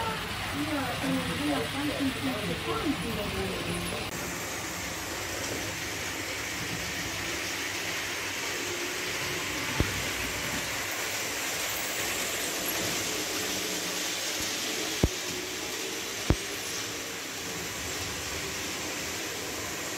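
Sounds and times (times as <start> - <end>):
model train wheels and motors whirring: 0.0 - 19.9.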